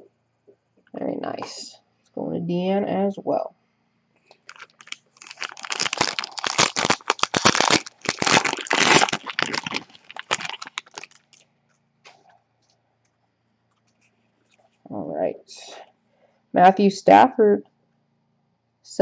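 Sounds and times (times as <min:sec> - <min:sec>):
foil wrapper crinkling: 0:04.3 - 0:11.4.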